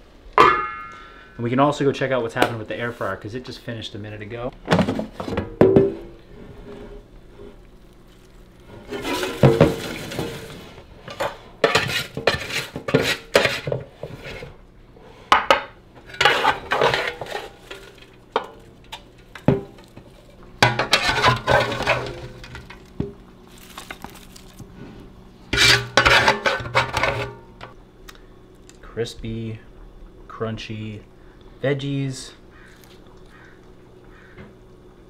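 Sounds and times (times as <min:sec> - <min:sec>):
utensil scraping air fryer basket: 0:06.2 - 0:15.3, 0:16.0 - 0:27.7.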